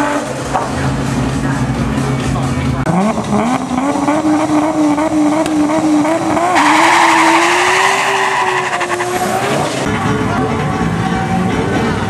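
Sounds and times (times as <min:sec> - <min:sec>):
race car engine at high revs: 0:00.0 - 0:09.9
tyres squealing in wheelspin: 0:06.3 - 0:09.9.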